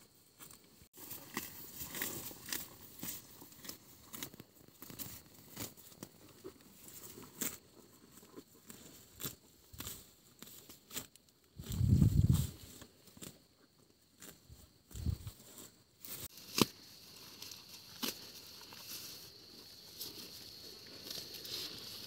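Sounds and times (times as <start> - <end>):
buffalo tearing grass: 1.0 - 12.6, 16.0 - 22.0.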